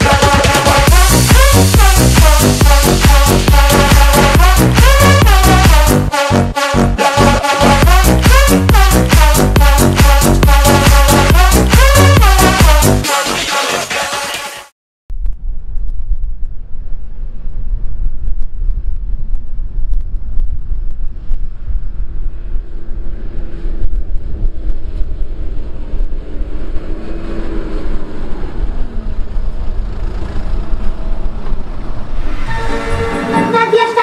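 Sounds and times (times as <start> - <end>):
engine whine rising and falling: 0.0 - 13.1, 15.2 - 33.5.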